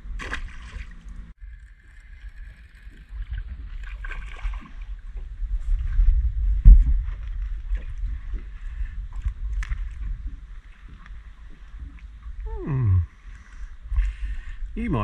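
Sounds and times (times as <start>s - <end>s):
water splashing: 0.0s - 5.4s
fish thrashing in water: 0.1s - 5.5s
wind rumble: 3.2s - 15.0s.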